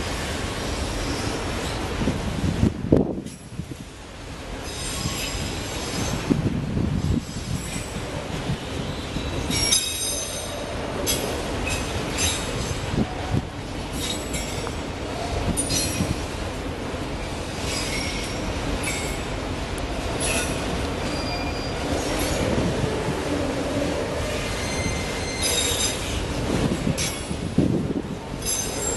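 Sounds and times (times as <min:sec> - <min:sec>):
steel wheels squealing: 0:04.6 - 0:06.2, 0:08.7 - 0:12.8, 0:13.9 - 0:14.7, 0:17.6 - 0:19.2, 0:20.2 - 0:22.6, 0:24.2 - 0:26.2, 0:28.4 - 0:28.9.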